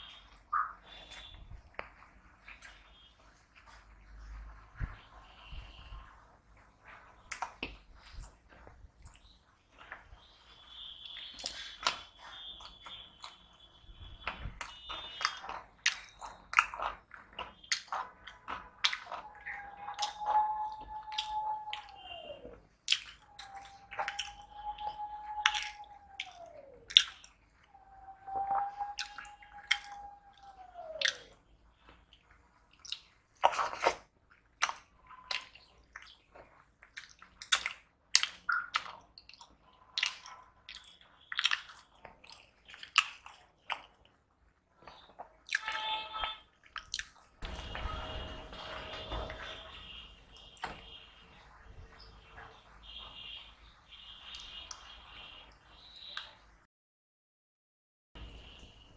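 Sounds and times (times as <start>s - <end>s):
wet chewing: 0.0s - 4.2s, 4.9s - 52.6s
cucumber crunching: 14.2s - 24.4s, 32.8s - 44.2s, 44.8s - 48.0s.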